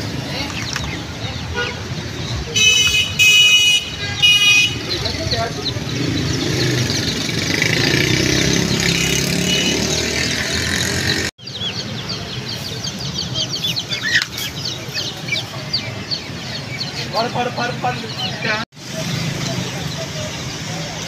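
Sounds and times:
caged birds chirping: 0.0 - 21.0
crowd noise: 0.0 - 21.0
traffic rumble: 0.0 - 21.0.

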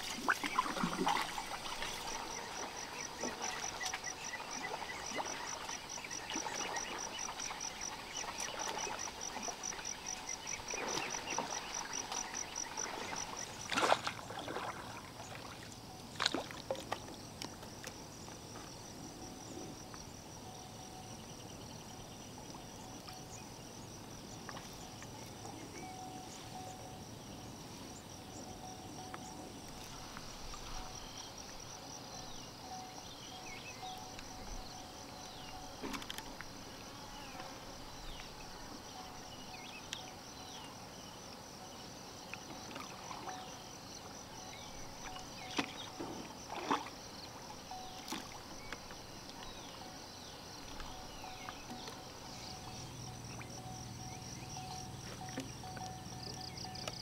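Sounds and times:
faint high chirring: 20.4 - 22.0, 24.8 - 41.9, 47.6 - 57.0.

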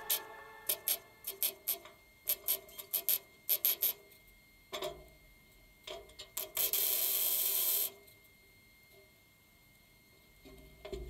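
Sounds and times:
steady welding buzz: 0.0 - 4.0, 6.4 - 8.0.

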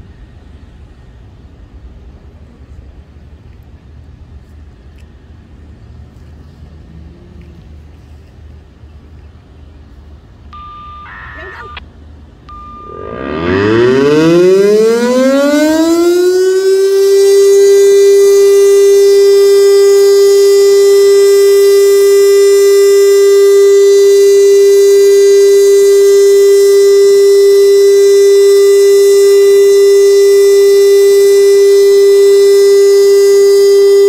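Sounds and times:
tornado siren winding up: 10.6 - 11.8, 12.5 - 34.0.

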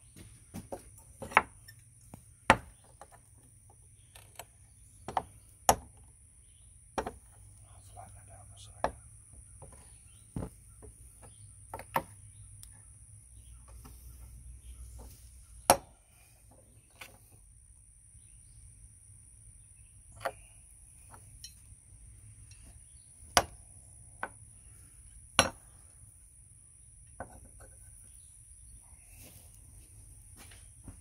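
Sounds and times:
metal clinks and knocks: 21.0 - 21.7.

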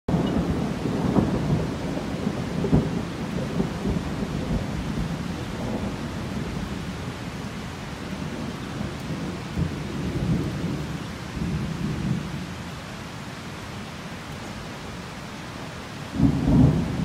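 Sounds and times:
thunder rumbling: 0.1 - 12.5, 16.1 - 17.0
steady rain: 0.1 - 17.0.

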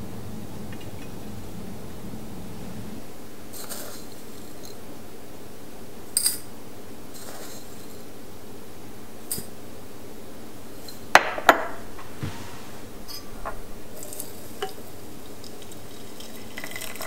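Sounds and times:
teaspoon clinking against glass: 6.2 - 6.5.

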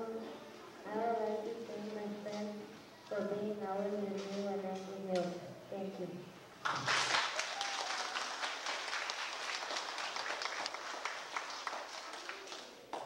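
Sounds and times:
audience applauding: 6.6 - 13.0.

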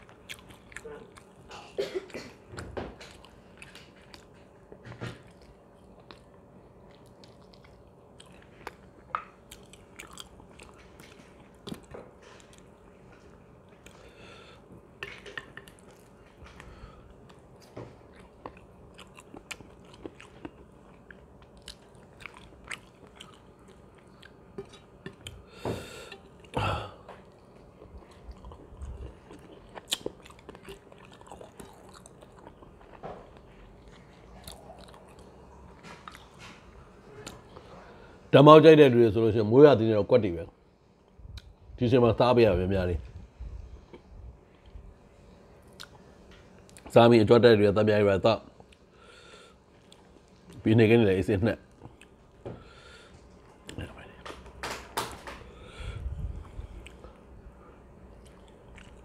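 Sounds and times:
person chewing food: 0.0 - 1.7, 3.0 - 37.7, 45.6 - 46.9, 48.6 - 50.6, 51.7 - 54.6, 55.2 - 59.0.

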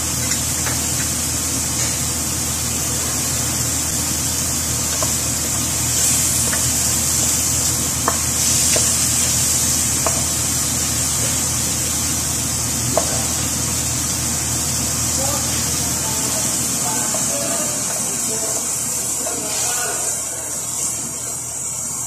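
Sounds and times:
food sizzling in a pan: 0.0 - 22.0
wooden spatula knocking on pan: 10.0 - 10.3.

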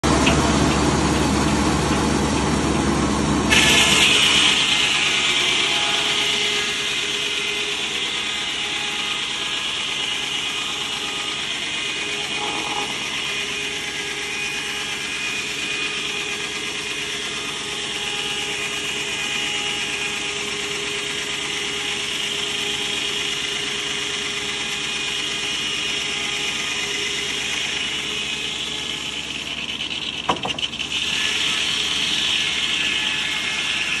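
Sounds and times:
circular saw blade ripping wood: 3.5 - 34.0.

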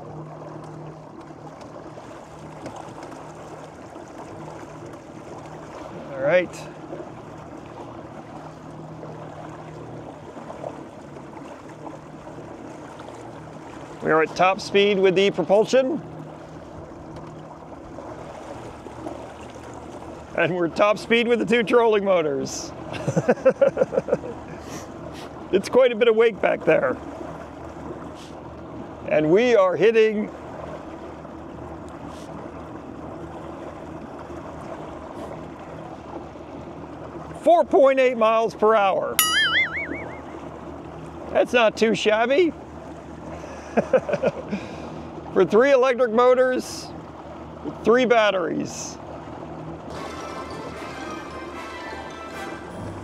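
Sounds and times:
low motor hum: 0.0 - 22.0, 39.2 - 41.4, 46.8 - 53.0
water rushing past boat hull: 0.0 - 23.1, 23.9 - 53.0.

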